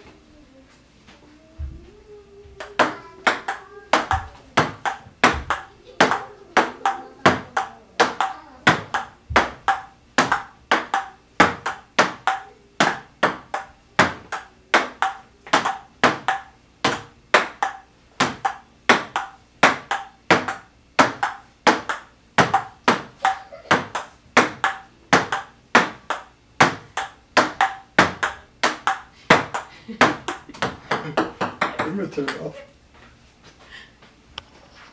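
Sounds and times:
ping-pong ball clicking off paddles: 2.6 - 32.5.

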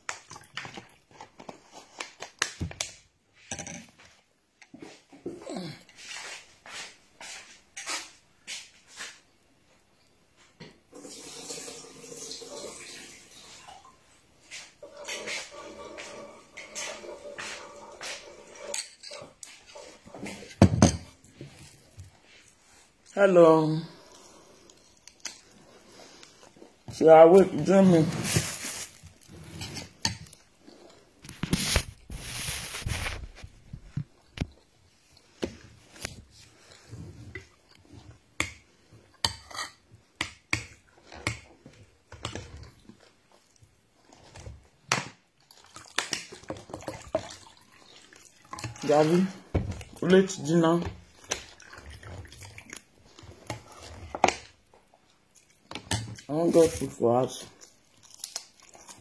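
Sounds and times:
water pouring: 10.9 - 14.2, 45.4 - 52.8.

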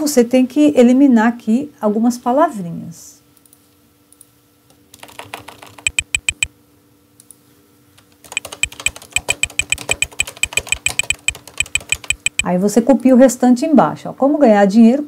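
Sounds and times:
typing on computer keyboard: 4.9 - 6.5, 8.0 - 12.5.

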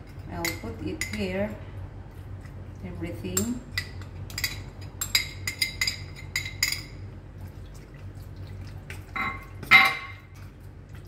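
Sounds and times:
glass bowl clinking on pot rim: 9.2 - 10.3
metal pot ringing clank: 9.2 - 10.3.

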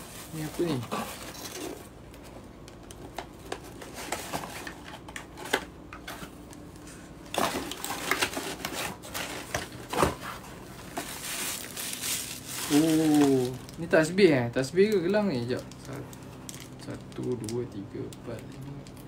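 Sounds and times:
paper filler crinkling: 7.3 - 14.1.

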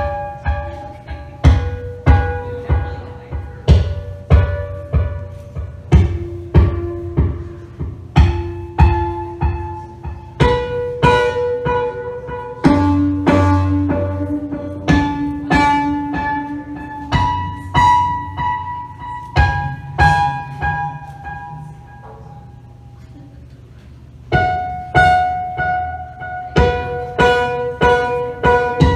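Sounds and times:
struck pitched electronic notes: 0.0 - 22.4.

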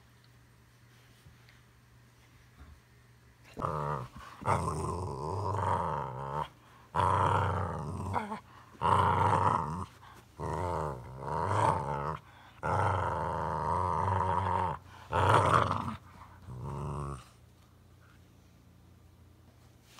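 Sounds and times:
dog growling: 3.5 - 17.4.

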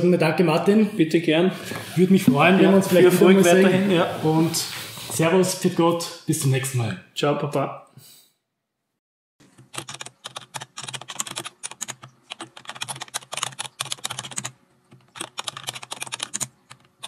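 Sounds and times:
keyboard typing clicks: 9.6 - 17.0.

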